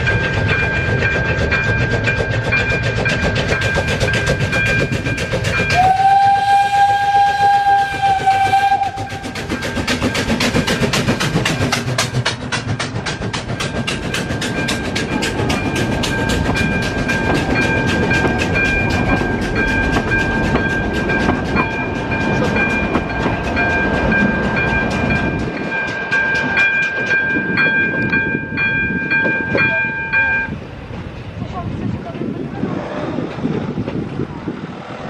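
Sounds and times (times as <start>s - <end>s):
train wheels clicking: 0.0s - 32.4s
low rumble of train: 0.0s - 35.0s
steady high ringing tone: 21.6s - 30.6s.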